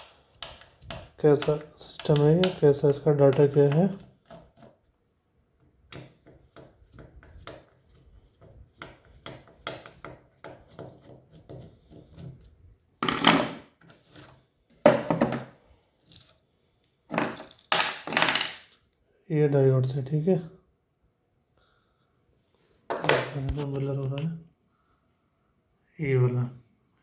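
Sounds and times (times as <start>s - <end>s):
rubbing and knocking noises: 6.0s - 12.6s.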